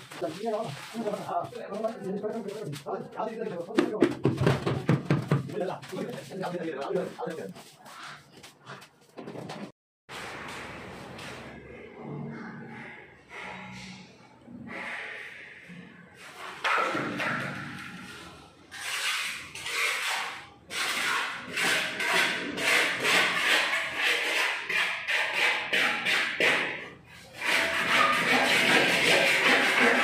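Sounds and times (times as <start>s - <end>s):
rough scraping strokes: 0.0s - 2.8s, 27.2s - 30.0s.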